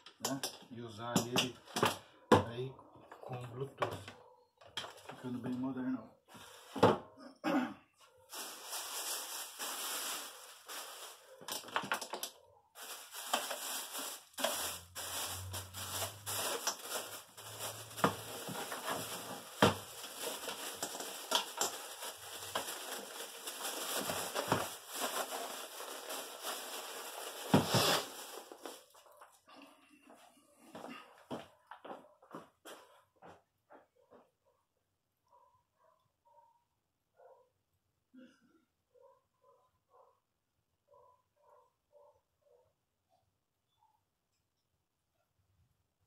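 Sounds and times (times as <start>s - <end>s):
plastic bag crinkling: 8.3s - 29.1s.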